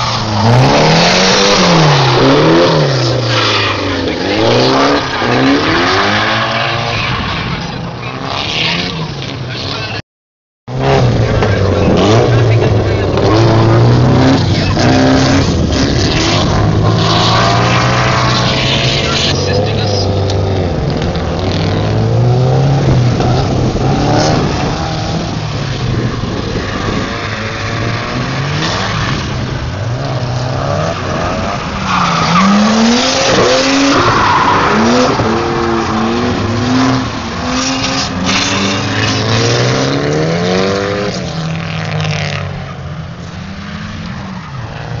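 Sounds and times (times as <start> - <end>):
car engine revving: 0.0 - 10.0, 10.7 - 45.0.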